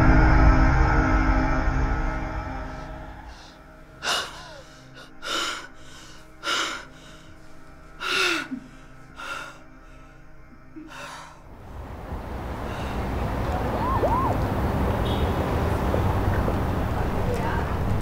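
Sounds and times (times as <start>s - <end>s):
low music drone: 0.0s - 18.0s
woman gasping in distress: 3.3s - 7.3s
short falling cry: 13.6s - 14.5s.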